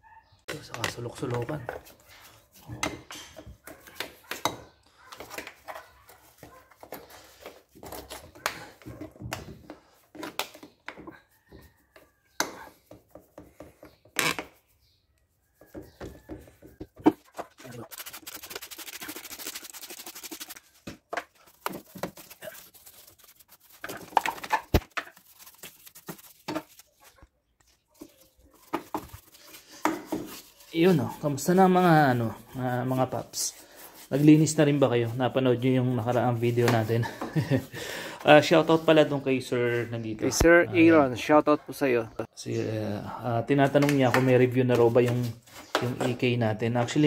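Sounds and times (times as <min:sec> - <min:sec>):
rags rubbing over engine parts: 0:00.7 - 0:04.4, 0:09.8 - 0:40.5, 0:43.9 - 0:47.0.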